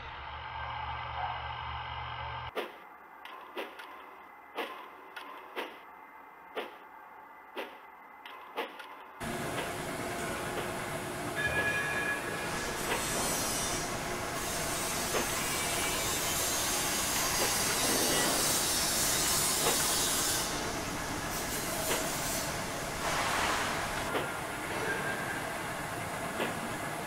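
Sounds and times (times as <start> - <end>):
steam hissing: 11.6 - 25.5.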